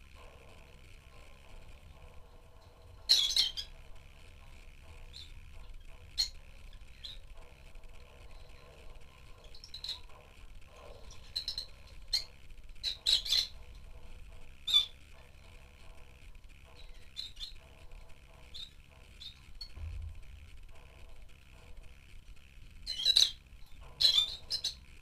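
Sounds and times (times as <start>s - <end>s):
lovebirds chirping: 1.1s - 15.6s, 16.6s - 19.8s, 22.9s - 24.9s.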